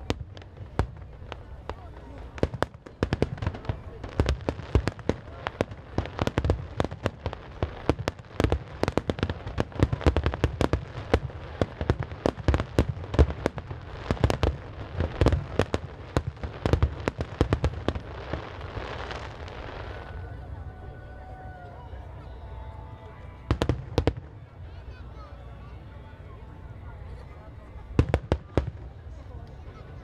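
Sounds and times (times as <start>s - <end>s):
deep fireworks booms: 0.0s - 20.1s, 23.5s - 24.4s
fireworks bursting: 0.0s - 20.2s, 23.4s - 24.4s.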